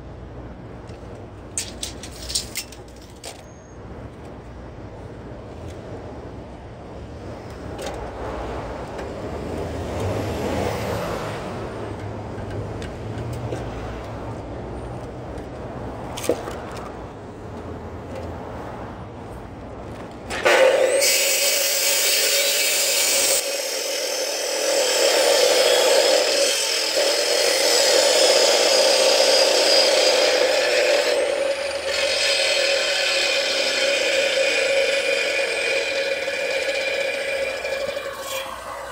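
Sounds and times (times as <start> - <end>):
miter saw cutting timber: 20.3 - 38.9.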